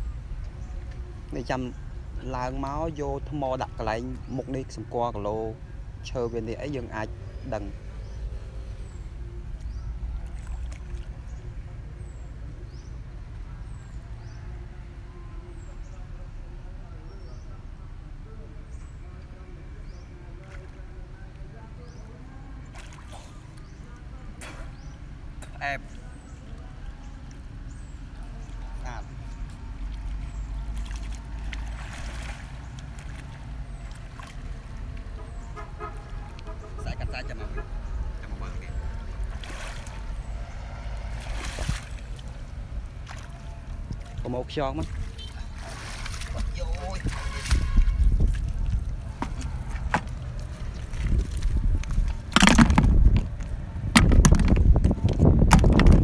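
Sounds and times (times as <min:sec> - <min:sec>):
faint water movement: 0:00.0 - 0:56.0
water swirl: 0:25.9 - 0:36.8, 0:37.5 - 0:53.8.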